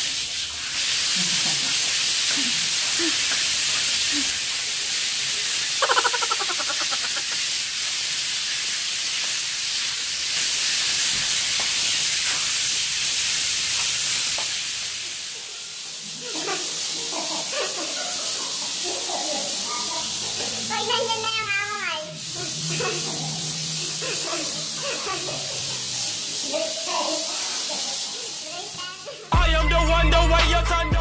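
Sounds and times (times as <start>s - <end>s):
sandpaper rasping on concrete: 0.4s - 14.6s.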